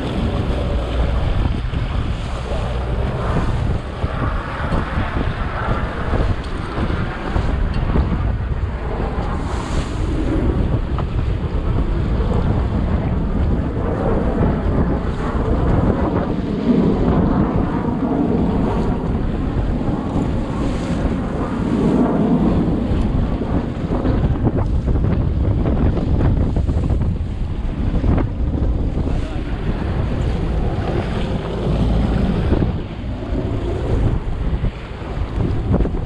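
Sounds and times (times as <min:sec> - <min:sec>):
outboard motor running: 0:00.0 - 0:05.0
choppy water rushing: 0:00.0 - 0:36.0
wind buffeting microphone: 0:00.0 - 0:36.0.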